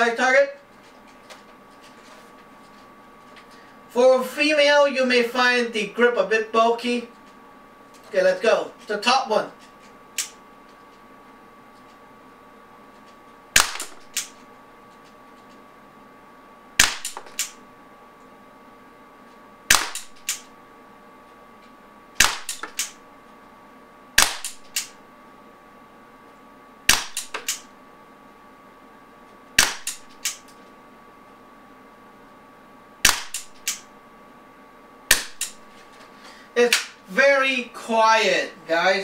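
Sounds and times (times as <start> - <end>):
pellet pistol shots: 13.6 - 14.4, 16.8 - 17.6, 19.7 - 20.5, 22.2 - 23.0, 24.2 - 24.9, 26.9 - 27.6, 29.6 - 30.4, 33.0 - 33.8.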